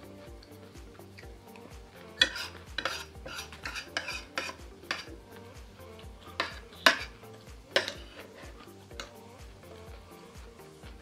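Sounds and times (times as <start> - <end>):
cutlery clinking on a plate: 2.2 - 5.2, 6.4 - 7.1, 7.7 - 9.1.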